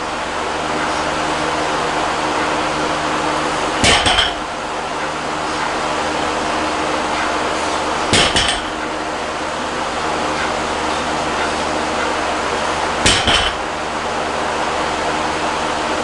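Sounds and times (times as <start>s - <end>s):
background hiss and hum: 0.0s - 16.0s
barbell landing on platform: 3.8s - 4.4s, 8.1s - 8.8s, 13.0s - 13.6s
metallic ring of bar and plates: 3.8s - 4.5s, 8.2s - 8.8s, 13.1s - 13.6s.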